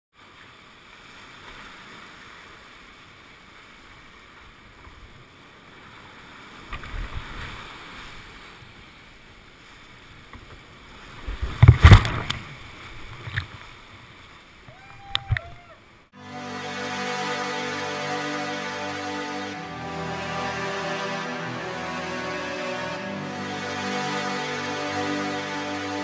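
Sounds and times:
kayak splashing through water: 10.5 - 14.4.

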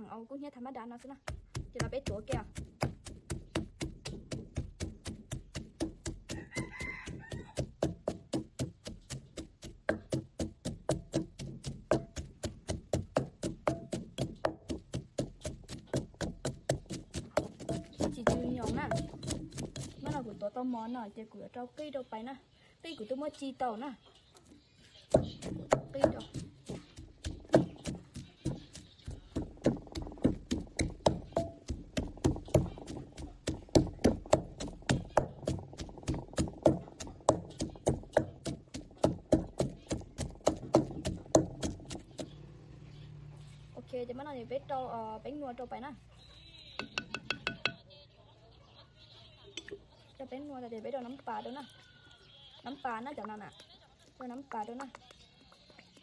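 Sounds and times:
pestle pounding in clay mortar: 1.2 - 20.6, 25.1 - 42.5, 46.8 - 47.8.

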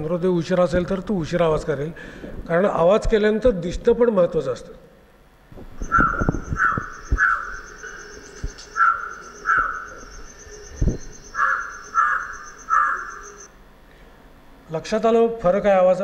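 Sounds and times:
high pulsing tone: 5.6 - 13.5
crow cawing: 5.8 - 10.6, 11.2 - 13.5.

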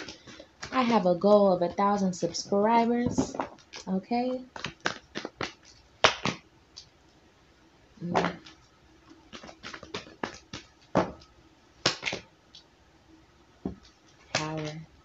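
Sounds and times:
cards snapping and tapping: 4.5 - 6.9, 9.3 - 12.3
cards rustling: 9.2 - 10.8.

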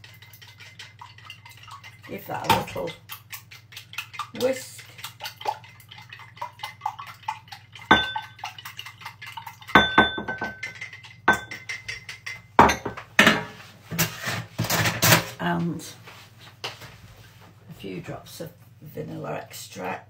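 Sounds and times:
egg beaten in a ceramic mug: 0.0 - 12.7.

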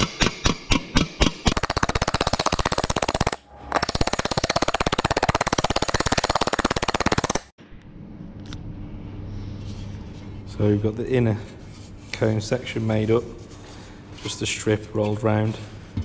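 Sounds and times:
power hammer on sheet metal: 0.0 - 7.5.

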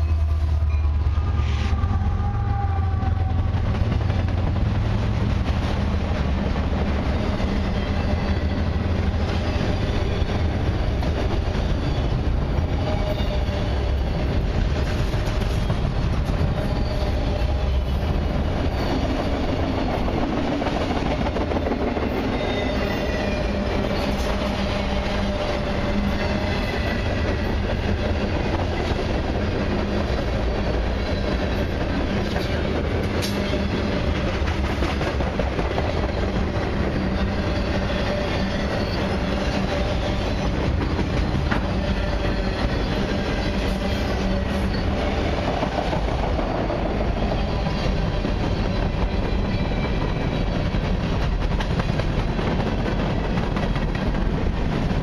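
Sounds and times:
train wheels rumbling on rails: 0.0 - 55.0
high wheel squeals: 7.0 - 14.6, 15.2 - 20.2, 22.1 - 28.5, 35.9 - 45.4, 47.0 - 50.8.

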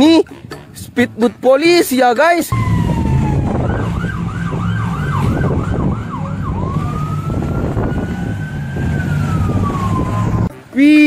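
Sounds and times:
low engine drone: 2.5 - 10.5
police siren: 2.5 - 10.5.

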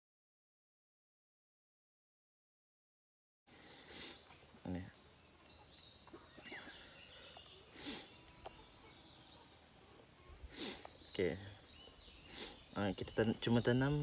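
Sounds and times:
insects droning: 3.5 - 14.0.

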